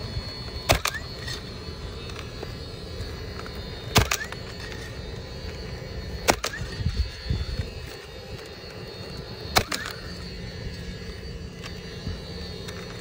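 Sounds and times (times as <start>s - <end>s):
steady low hum: 0.0s - 13.0s
roofing nailer firing: 0.7s - 1.1s, 3.9s - 4.4s, 6.2s - 6.7s, 9.5s - 9.9s.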